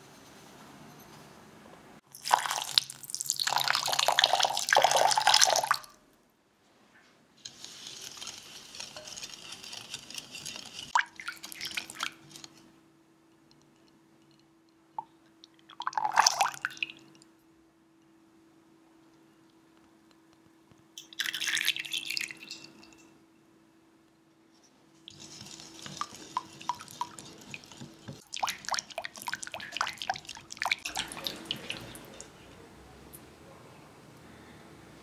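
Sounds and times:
syrup pouring: 0:02.1 - 0:05.9, 0:07.6 - 0:12.6, 0:21.0 - 0:23.0, 0:25.1 - 0:32.4
water pouring into glass bowl: 0:02.1 - 0:05.9, 0:10.9 - 0:12.2, 0:15.7 - 0:17.3, 0:21.0 - 0:23.1, 0:25.2 - 0:32.4
whisk stirring against glass: 0:07.5 - 0:12.6, 0:25.0 - 0:32.5.

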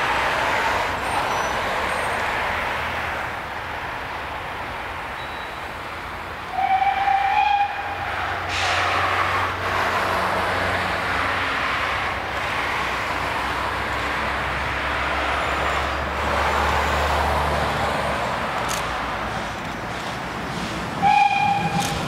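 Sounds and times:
road traffic passing: 0:00.0 - 0:22.0
steam locomotive whistle: 0:06.5 - 0:09.3, 0:21.0 - 0:22.0.

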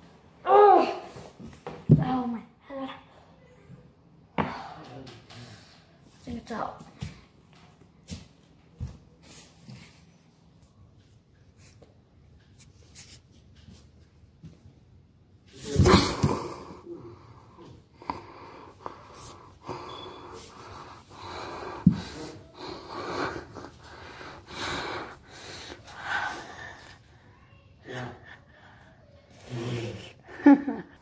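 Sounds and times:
person breathing heavily: 0:15.8 - 0:30.7.

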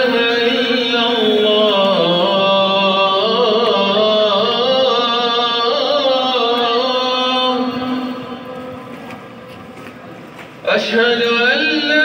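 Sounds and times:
slow melodic chanting: 0:00.0 - 0:09.4.

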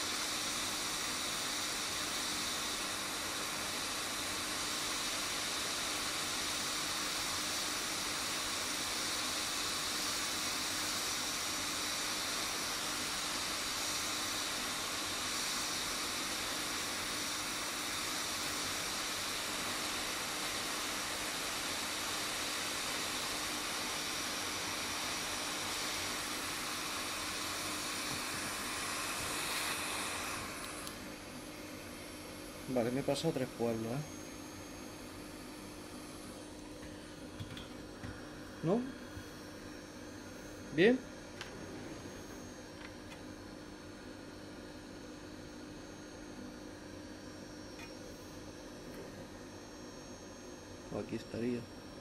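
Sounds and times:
hot air hissing: 0:00.0 - 0:36.1.

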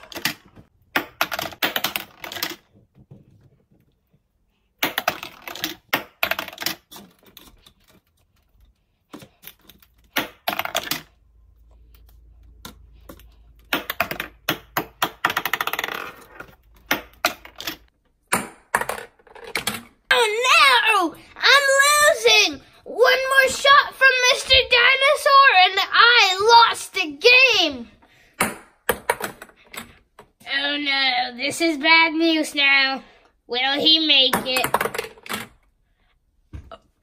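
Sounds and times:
plastic balls clattering on table: 0:00.0 - 0:03.7, 0:04.8 - 0:08.2, 0:12.5 - 0:20.0.

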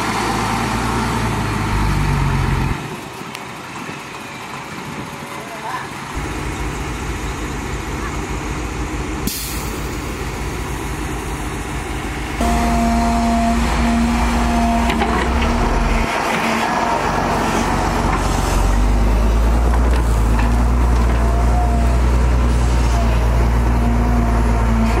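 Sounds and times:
excavator diesel engine whining: 0:05.9 - 0:25.0.

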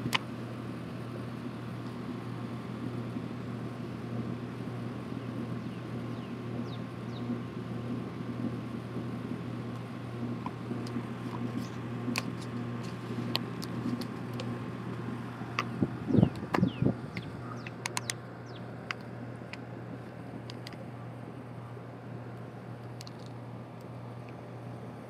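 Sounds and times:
low mechanical hum: 0:00.0 - 0:25.0
sharp clicks: 0:15.5 - 0:19.6.

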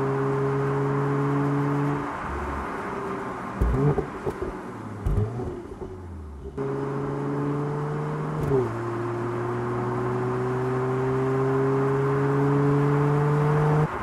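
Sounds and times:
car engine accelerating: 0:00.0 - 0:14.0.

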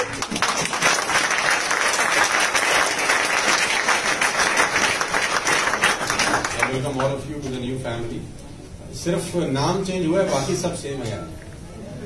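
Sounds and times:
audience applauding: 0:00.0 - 0:07.2.

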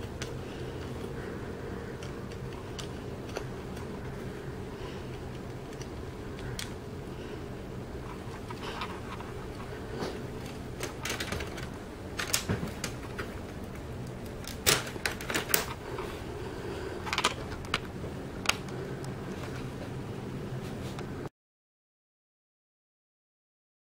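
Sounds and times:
steady low hum: 0:00.0 - 0:21.3
plastic bricks clicking and clattering: 0:10.4 - 0:15.8, 0:17.1 - 0:17.8.

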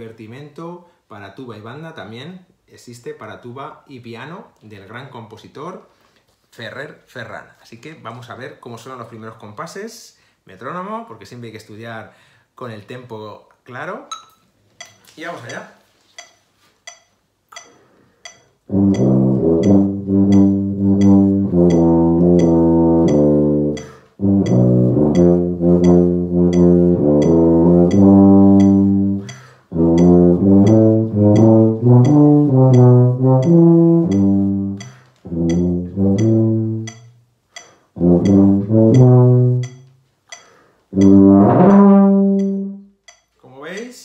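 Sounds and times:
metronome clicking: 0:14.1 - 0:44.0
tuba playing: 0:18.6 - 0:37.2, 0:38.0 - 0:39.9, 0:40.9 - 0:42.9.

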